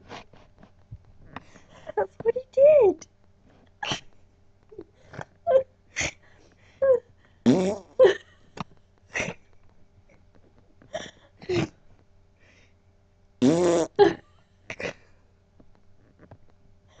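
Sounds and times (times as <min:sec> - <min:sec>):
woman making squawk-like noises: 0:03.8 - 0:04.0, 0:05.5 - 0:06.2, 0:06.8 - 0:07.0.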